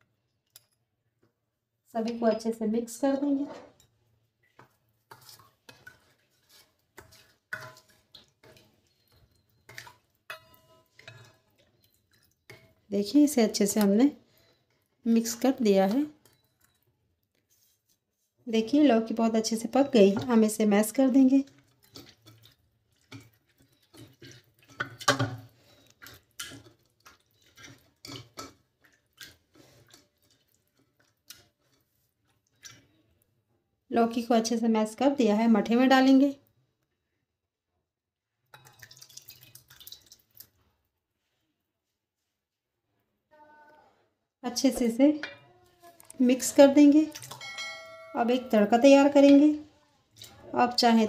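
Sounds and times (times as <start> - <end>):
masher squelching cooked gourd: 4.6 - 10.2
ladle scraping metal bowl: 4.6 - 13.9, 18.6 - 28.6.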